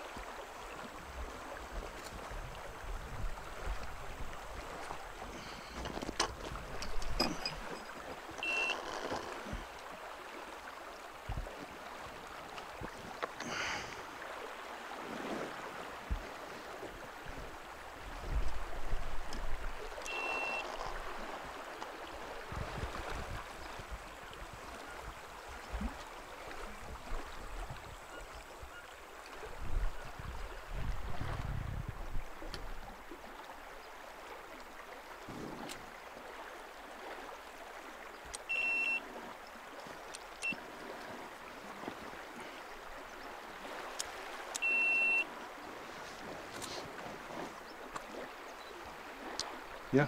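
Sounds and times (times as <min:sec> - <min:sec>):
river water rushing: 0:00.0 - 0:31.4, 0:32.0 - 0:50.0
short high chirps: 0:08.4 - 0:08.8, 0:20.1 - 0:20.6, 0:38.5 - 0:39.0, 0:44.6 - 0:45.2.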